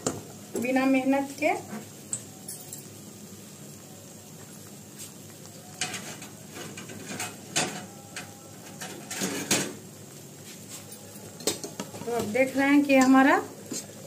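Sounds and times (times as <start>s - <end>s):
food deep-frying in oil: 0.0s - 14.0s.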